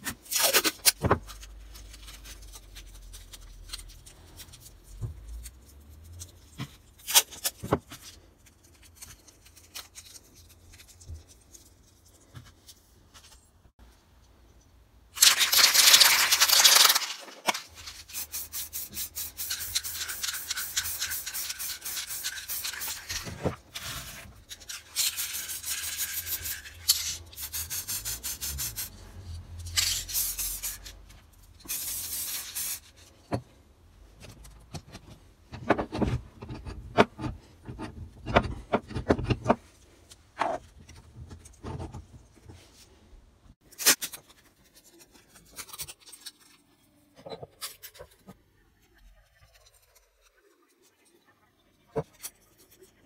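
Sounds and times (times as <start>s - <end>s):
spray can rattling: 15.2s - 23.3s, 24.0s - 28.9s, 29.8s - 30.9s, 31.7s - 32.8s
spray paint can hissing: 18.1s - 23.2s, 25.0s - 29.0s, 29.8s - 30.8s, 31.7s - 32.8s.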